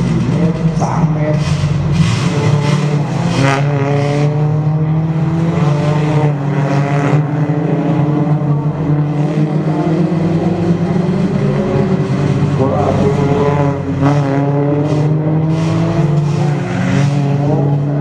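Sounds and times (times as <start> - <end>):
race car engines revving: 0.0 - 18.0.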